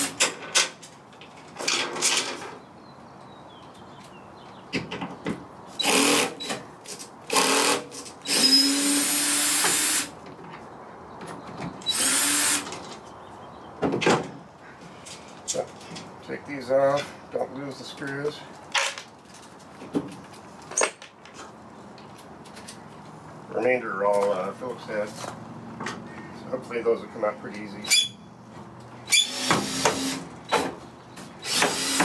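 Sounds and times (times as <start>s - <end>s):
cordless drill whirring: 5.8s - 6.5s, 7.3s - 10.1s, 11.9s - 12.6s, 29.1s - 30.2s, 31.4s - 32.0s.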